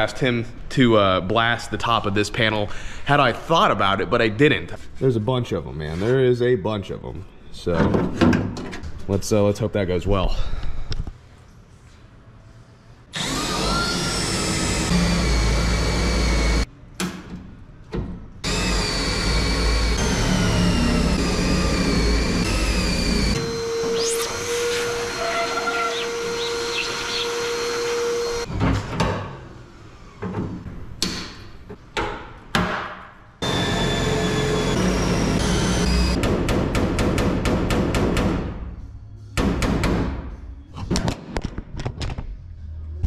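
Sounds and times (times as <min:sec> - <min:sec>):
electric drill boring steel: 0:13.2 - 0:16.7, 0:18.4 - 0:28.5, 0:33.4 - 0:36.2.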